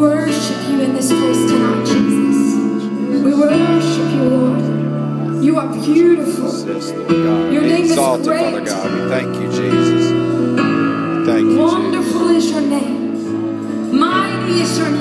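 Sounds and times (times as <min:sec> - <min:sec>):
keyboard chords: 0:00.0 - 0:15.0
person singing: 0:07.3 - 0:10.1.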